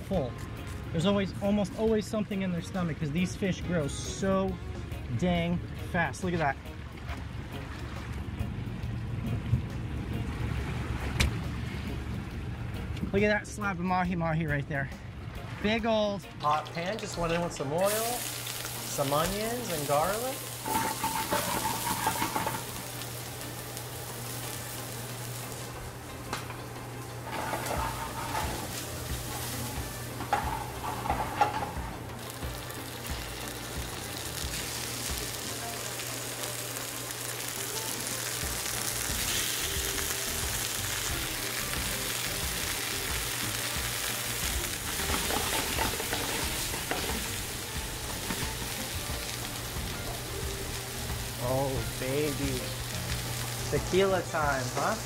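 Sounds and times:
food sizzling in frying pan: 17.8 - 55.0.

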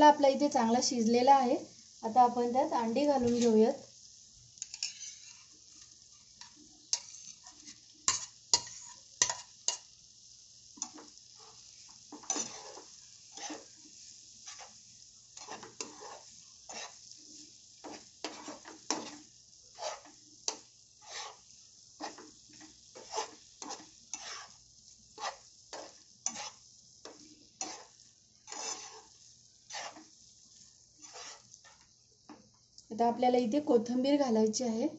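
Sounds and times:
faint sizzle: 0.0 - 34.9
spatula scraping frying pan: 4.6 - 9.9, 10.8 - 32.4.

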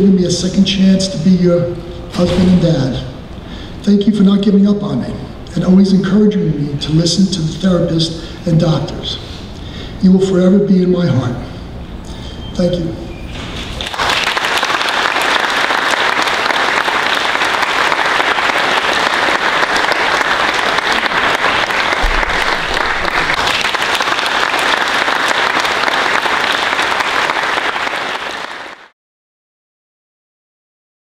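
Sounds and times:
audience applauding: 13.7 - 28.9.

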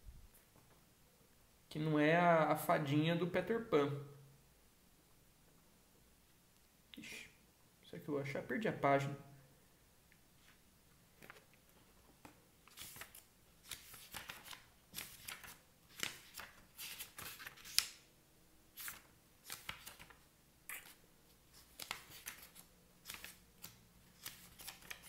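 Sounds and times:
book pages flipping: 10.4 - 10.6, 11.2 - 18.0, 18.7 - 25.0.

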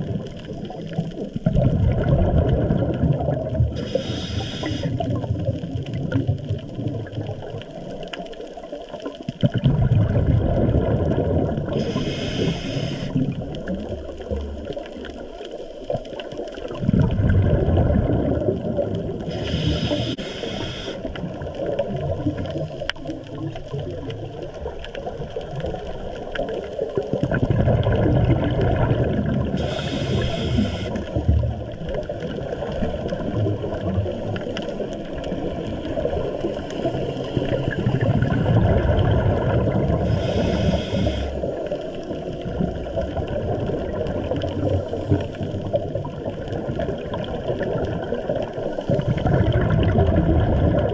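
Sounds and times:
gurgling exhaled bubbles: 0.0 - 50.9
hissing inhale through regulator: 3.8 - 5.2, 11.7 - 13.3, 19.2 - 21.2, 29.6 - 31.1, 36.5 - 38.1, 40.0 - 41.6.

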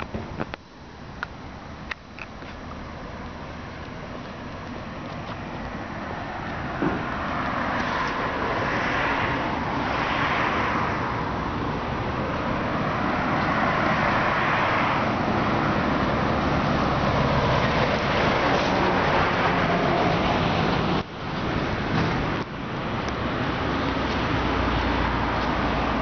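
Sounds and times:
cars passing on road: 0.0 - 26.0.

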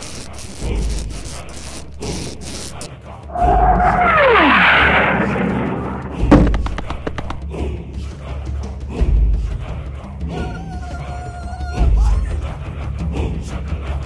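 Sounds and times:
loud rushing noise: 0.0 - 7.5
sharp knock: 6.2 - 7.5
quick run of clicks: 6.3 - 7.5.

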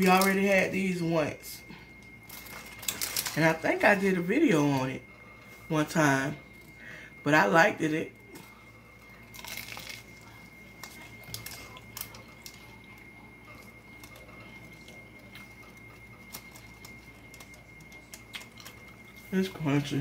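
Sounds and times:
faint chewing with crackles: 8.2 - 19.6.

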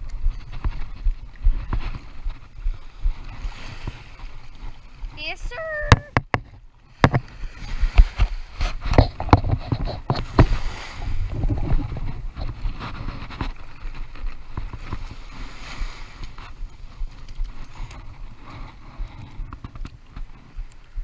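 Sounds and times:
wind on microphone: 0.0 - 21.0
surf washing over sand: 6.9 - 19.6
sleeve brushing against camera: 7.6 - 19.6.

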